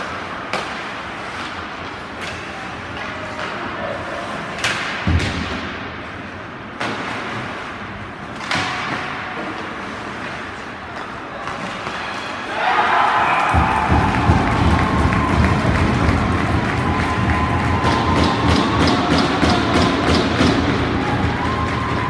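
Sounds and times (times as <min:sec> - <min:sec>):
hockey sticks and puck knocking: 0:00.0 - 0:03.8, 0:04.4 - 0:05.8, 0:06.7 - 0:12.0, 0:13.4 - 0:22.0
puck hitting boards: 0:00.5 - 0:02.5, 0:04.6 - 0:05.7, 0:06.8 - 0:07.6, 0:08.3 - 0:09.8, 0:13.5 - 0:22.0
skates scraping on ice: 0:06.0 - 0:12.4
crowd cheering: 0:12.3 - 0:22.0.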